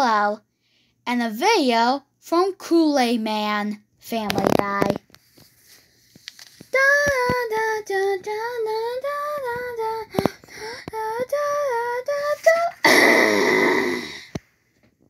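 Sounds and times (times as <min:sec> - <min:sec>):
child singing: 0:06.8 - 0:12.8.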